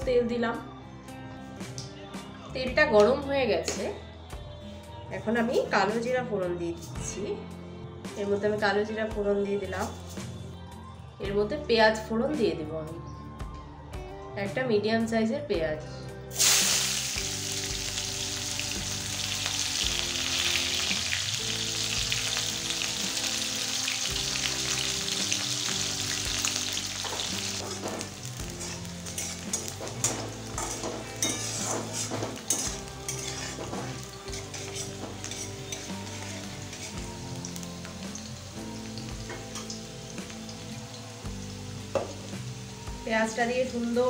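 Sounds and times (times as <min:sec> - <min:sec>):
onion sizzling in oil: 0:16.3 - 0:44.0
metal spatula scraping pan: 0:27.6 - 0:37.1.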